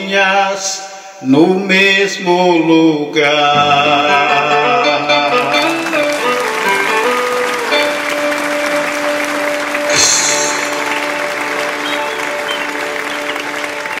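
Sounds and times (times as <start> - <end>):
song final chord held: 3.6 - 14.0
applause: 5.3 - 14.0
cymbal-like crash with hissing tail: 9.9 - 10.8.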